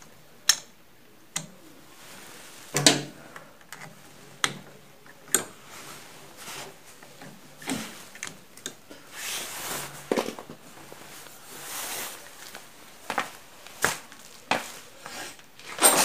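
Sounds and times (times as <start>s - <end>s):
rustling: 1.4s - 16.0s.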